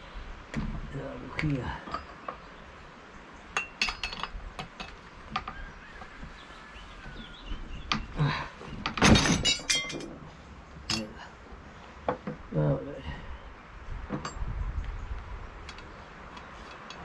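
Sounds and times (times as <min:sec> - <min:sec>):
metal tool clicking and clinking: 0:03.6 - 0:05.0, 0:09.0 - 0:10.1, 0:10.9 - 0:11.2
metallic rattle and scrape: 0:08.9 - 0:11.2.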